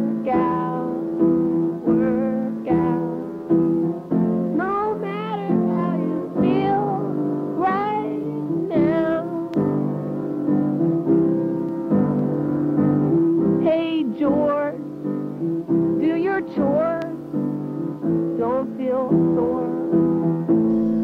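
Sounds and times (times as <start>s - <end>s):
person singing: 0.0s - 3.6s, 4.5s - 10.0s, 13.5s - 14.9s, 15.9s - 17.3s, 17.9s - 21.0s.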